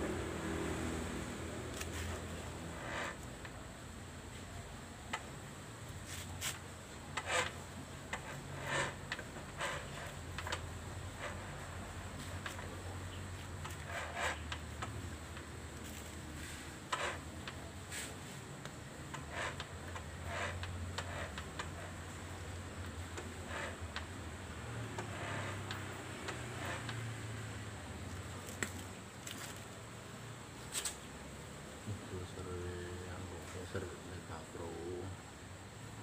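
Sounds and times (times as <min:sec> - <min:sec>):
abrasive block rasping on steel: 0:02.0 - 0:03.6, 0:06.1 - 0:12.9, 0:13.6 - 0:14.9, 0:16.4 - 0:18.2, 0:19.1 - 0:24.1, 0:24.7 - 0:27.5.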